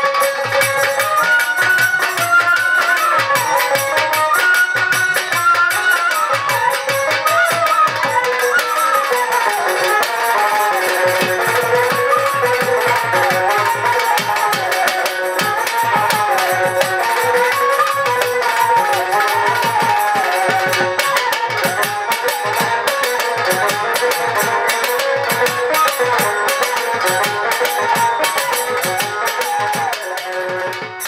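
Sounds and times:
violin playing folk melody: 0.0s - 31.0s
hand drums steady beat: 6.2s - 31.0s.

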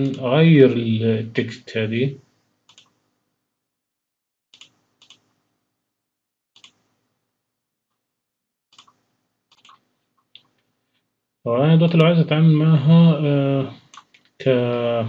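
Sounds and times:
faint computer mouse clicks: 2.7s - 3.0s, 4.6s - 5.2s, 6.6s - 6.8s.

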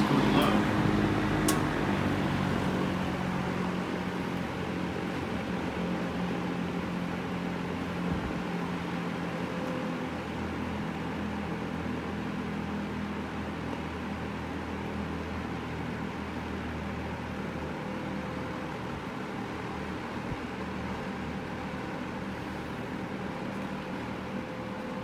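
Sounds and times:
box fan running: 0.0s - 25.0s.

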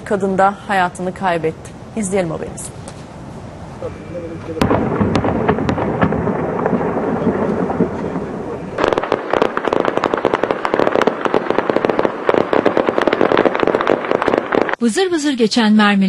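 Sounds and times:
explosions rumbling: 0.0s - 14.8s
gunfire crackle: 4.4s - 14.8s.

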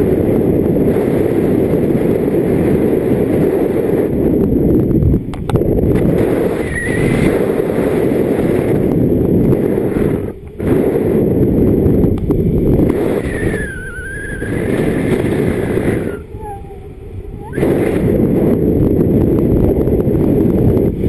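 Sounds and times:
wind buffeting microphone: 0.0s - 21.0s
thin whistle: 13.2s - 14.8s.

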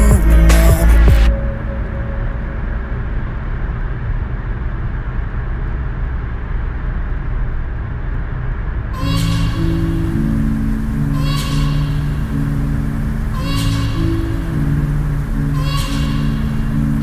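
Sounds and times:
music: 0.0s - 2.6s, 9.0s - 17.0s
road and tyre noise in car: 0.0s - 17.0s.

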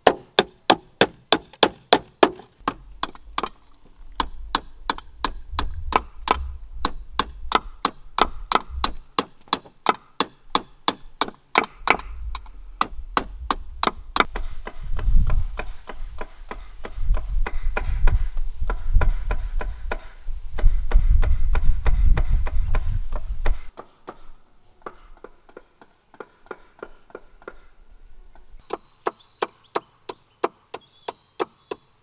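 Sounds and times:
knife chopping bamboo on wood: 0.0s - 3.6s.

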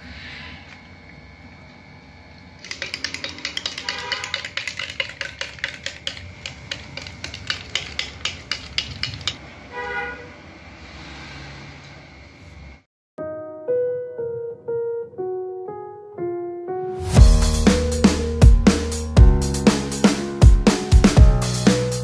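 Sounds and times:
spoon clinking in glass mug: 2.6s - 9.4s.

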